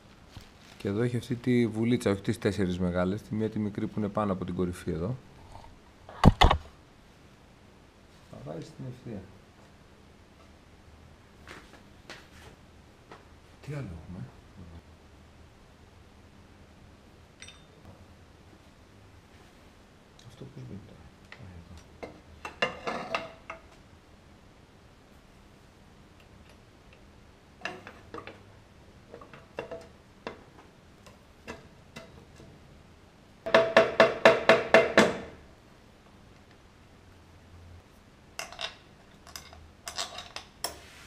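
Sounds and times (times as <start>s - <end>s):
tools clinking on metal: 17.4s - 17.8s.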